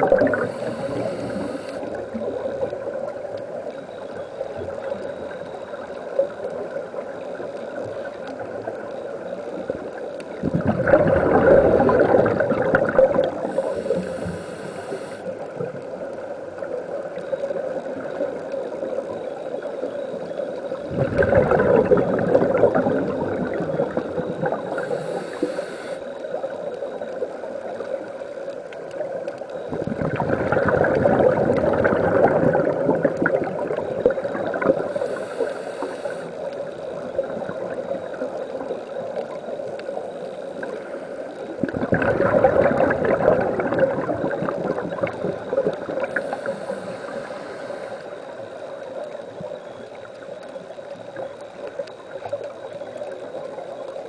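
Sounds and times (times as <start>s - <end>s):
gurgling exhaled bubbles: 0.0s - 3.4s, 4.6s - 19.8s, 20.6s - 28.0s, 29.5s - 53.7s
regulator inhalation hiss: 0.2s - 2.2s, 13.3s - 15.4s, 24.5s - 26.6s, 34.7s - 36.8s, 45.4s - 48.9s.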